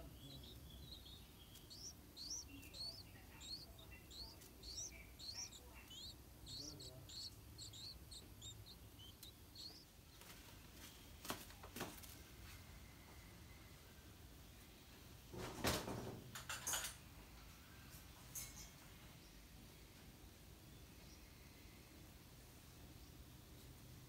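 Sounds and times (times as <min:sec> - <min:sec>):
nestlings begging chirps: 0:00.0 - 0:10.3, 0:20.7 - 0:21.4.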